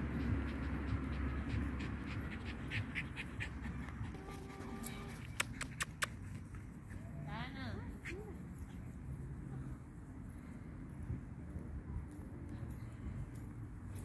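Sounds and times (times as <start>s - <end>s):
dog panting: 0.0s - 6.5s.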